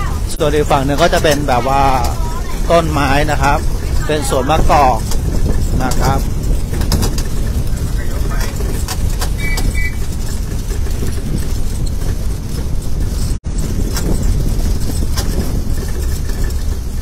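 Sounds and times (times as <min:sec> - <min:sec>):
light rattles: 0:00.0 - 0:17.0
road train rumbling: 0:00.0 - 0:17.0.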